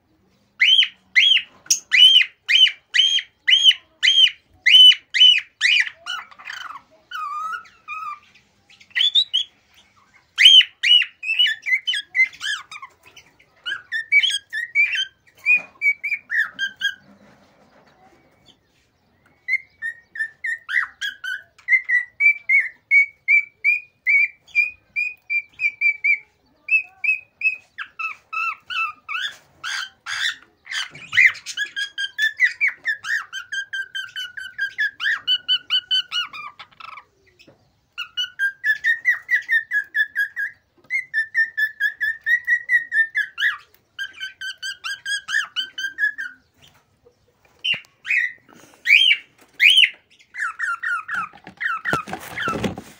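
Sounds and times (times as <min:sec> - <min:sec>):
cockatiel squawking: 0:00.6 - 0:08.3, 0:27.1 - 0:37.1, 0:38.0 - 0:46.4, 0:47.6 - 0:52.8
cockatiel whistling: 0:38.0 - 0:46.4, 0:47.6 - 0:52.5.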